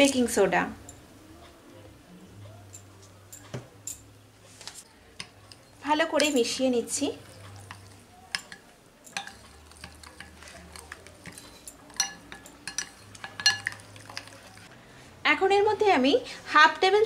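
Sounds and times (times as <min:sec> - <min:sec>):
spoon stirring thick batter: 0:04.8 - 0:14.7
spoon clinking against glass: 0:07.2 - 0:14.7.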